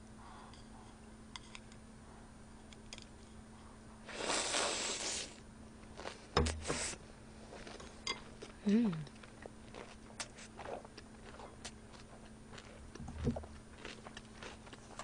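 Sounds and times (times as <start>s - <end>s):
faint low hum: 0.0s - 15.0s
noodle slurping: 4.1s - 5.4s.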